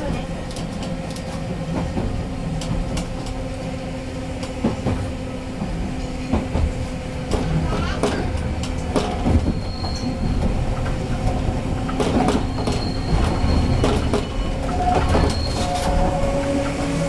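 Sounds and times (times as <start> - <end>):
train rumble and hum: 0.0 - 17.0
wheels clicking over rail joints: 4.4 - 16.8
wheel squeals: 9.2 - 11.0, 11.8 - 17.0.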